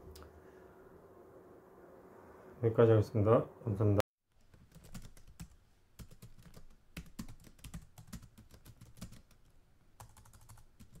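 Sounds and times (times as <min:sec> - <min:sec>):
faint keyboard typing: 0:04.3 - 0:11.0.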